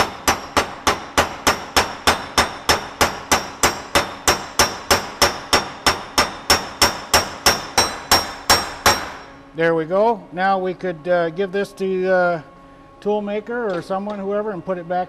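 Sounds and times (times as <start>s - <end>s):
hammer striking metal: 0.0s - 9.4s.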